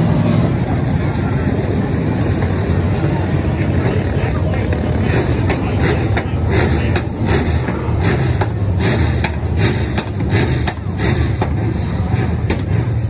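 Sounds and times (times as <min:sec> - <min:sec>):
race car engines: 0:00.0 - 0:13.0.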